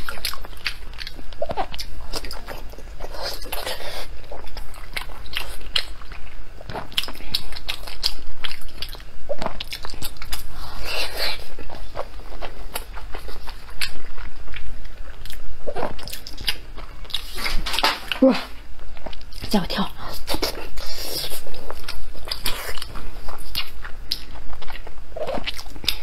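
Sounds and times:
wet chewing and mouth smacks: 20.2s - 26.0s.

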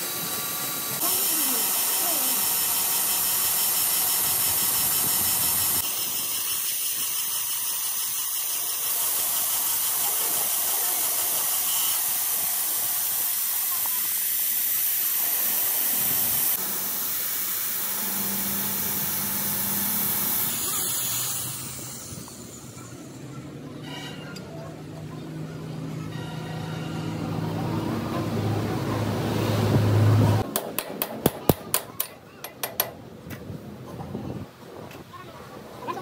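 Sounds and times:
grinder hissing on metal: 0.0s - 23.5s.

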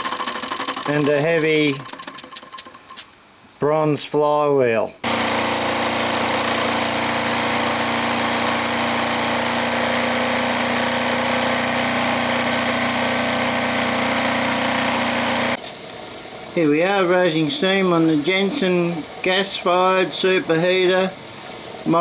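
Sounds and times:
toy steam engine whirring: 0.0s - 3.1s
steam hissing: 5.0s - 22.0s.

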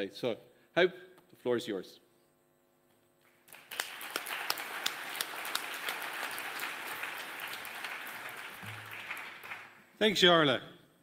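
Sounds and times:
audience applauding: 3.3s - 9.8s.

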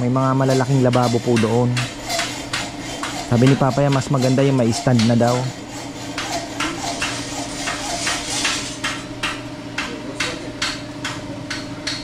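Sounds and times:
hand tool strokes: 0.0s - 9.0s.

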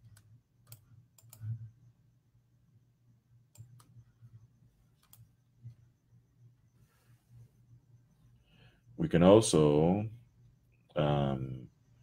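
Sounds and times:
faint computer clicks: 0.0s - 1.7s, 3.5s - 4.1s, 4.9s - 5.4s.

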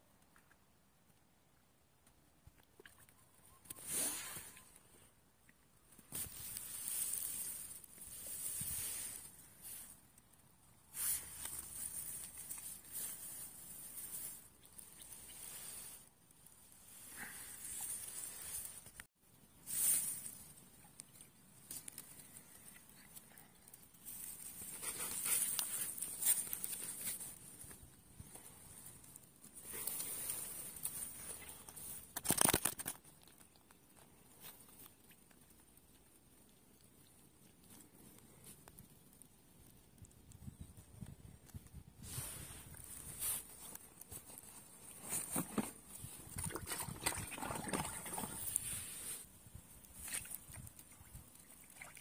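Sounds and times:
rustling hiss: 3.7s - 5.1s, 6.0s - 32.2s, 41.4s - 46.4s, 48.1s - 51.7s
grass brushing the phone: 6.1s - 10.0s, 10.9s - 16.1s, 16.8s - 19.0s, 19.7s - 20.5s, 24.1s - 27.5s, 42.0s - 46.2s, 48.2s - 49.3s.

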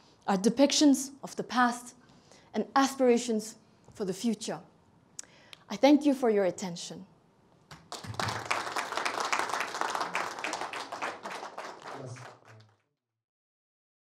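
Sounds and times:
audience applauding: 7.7s - 12.8s.

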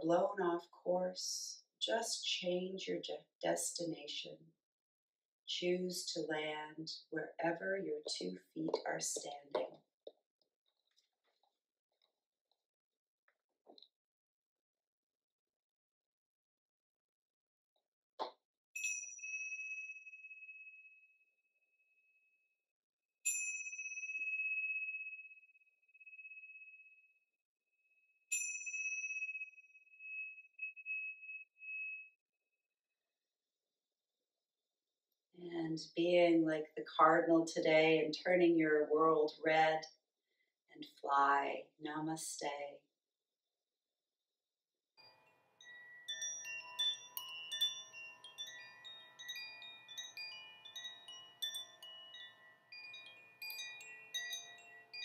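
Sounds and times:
small cymbals ringing: 45.0s - 55.0s.

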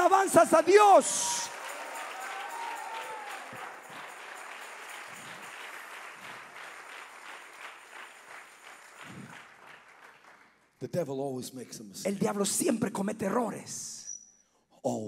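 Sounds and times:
congregation applauding: 0.0s - 10.8s.

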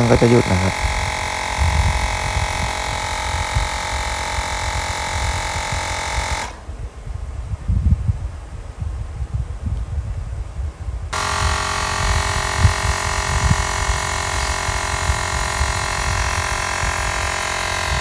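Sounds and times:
electric air pump humming: 0.0s - 6.7s, 11.1s - 18.0s.

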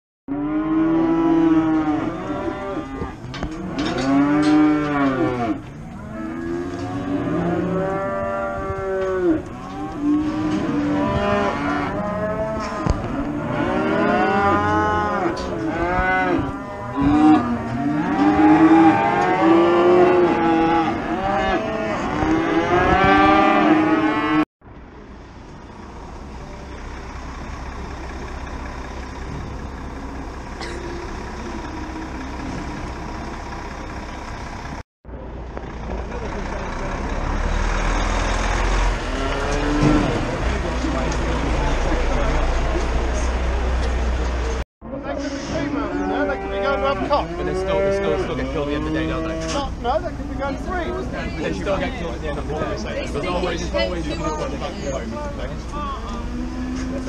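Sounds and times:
cattle mooing and bellowing: 0.3s - 24.4s, 37.7s - 40.4s, 45.7s - 49.8s, 55.8s - 57.0s
lorry engine idling: 24.7s - 44.6s.

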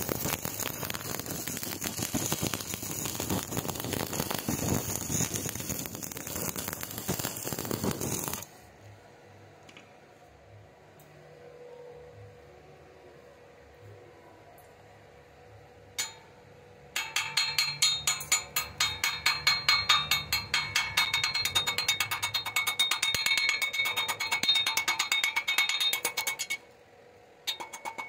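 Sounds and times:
hammer tapping on steel: 16.0s - 16.3s, 17.0s - 26.6s, 27.5s - 28.0s.

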